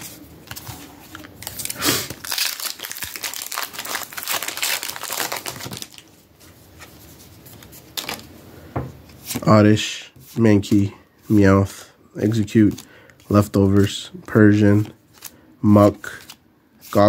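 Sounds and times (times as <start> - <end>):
foil wrapper tearing and crinkling: 1.2 - 6.0.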